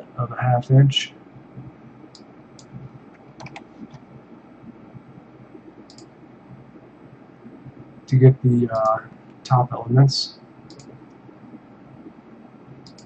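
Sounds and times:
low steady hiss: 0.0s - 13.0s
keyboard and mouse clicks: 2.1s - 4.0s, 5.9s - 6.1s, 10.7s - 11.2s.

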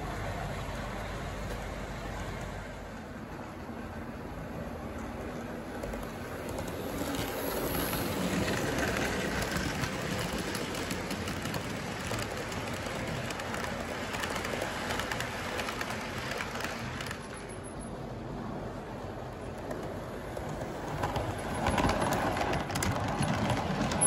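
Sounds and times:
wheels clicking over track joints: 4.8s - 17.6s, 19.4s - 24.0s.

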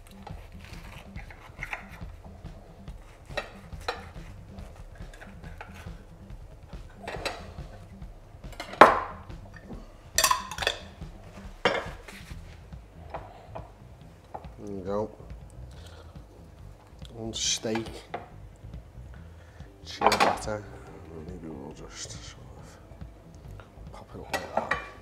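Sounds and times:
knife sawing through crusty bread: 0.1s - 2.1s
knife knocking plate: 8.5s - 12.1s.

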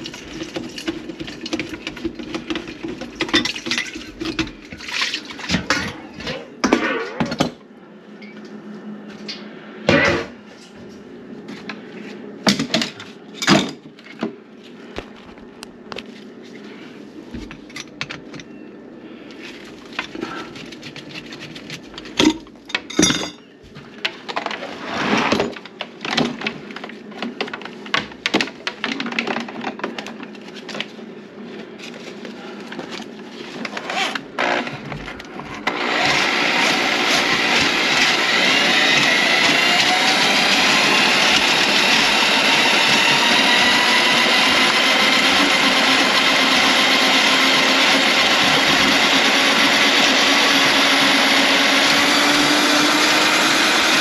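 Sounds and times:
power tool motor whining: 33.8s - 35.0s, 35.6s - 54.0s.

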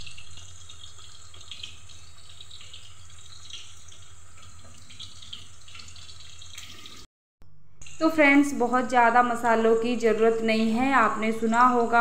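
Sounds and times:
vegetables sizzling in hot oil: 0.0s - 7.0s.

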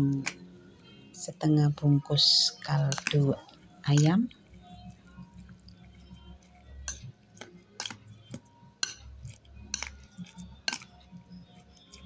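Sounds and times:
metal spoon stirring wet mixture: 0.0s - 0.4s, 1.7s - 12.0s
spoon clinking against glass bowl: 2.5s - 6.1s, 6.8s - 11.1s.

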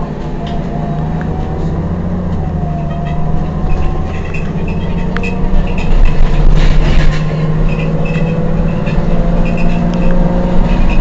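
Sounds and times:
bus diesel engine idling: 0.0s - 7.5s.

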